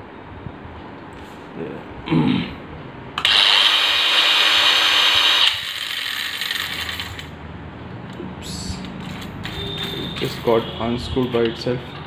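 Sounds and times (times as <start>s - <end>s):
angle grinder high whine: 3.2s - 7.3s
grinder spinning down: 3.2s - 7.3s.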